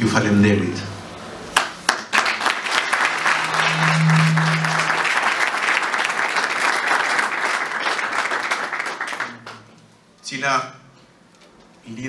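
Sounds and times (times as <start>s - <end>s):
audience applauding: 1.6s - 9.6s
low steady hum: 2.9s - 5.7s.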